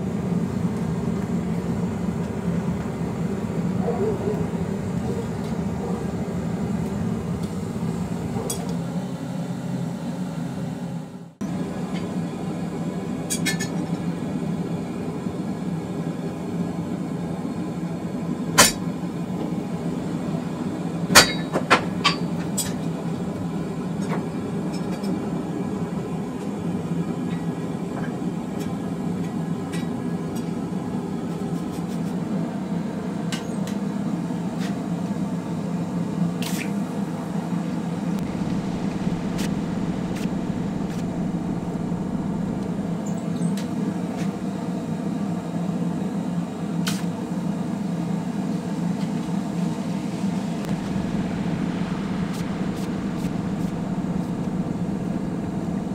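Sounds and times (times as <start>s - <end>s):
low mechanical hum: 38.2s - 43.6s, 50.0s - 55.9s.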